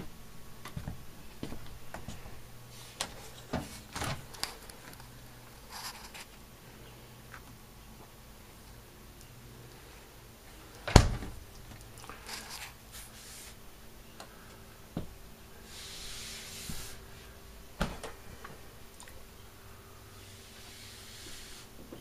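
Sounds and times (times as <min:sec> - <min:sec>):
rustling: 0:01.4 - 0:06.4, 0:11.7 - 0:13.6
door shutting with a thud: 0:10.9 - 0:11.4, 0:17.8 - 0:18.2.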